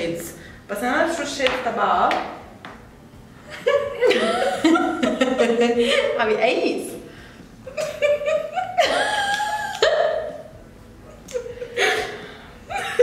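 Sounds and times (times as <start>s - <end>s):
women laughing: 3.5s - 6.2s, 7.6s - 10.5s, 11.1s - 13.0s.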